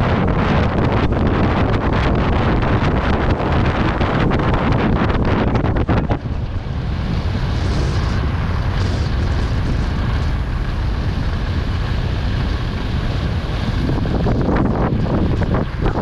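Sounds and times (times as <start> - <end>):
wind buffeting microphone: 0.0 - 16.0
skis hissing on snow: 6.6 - 14.3.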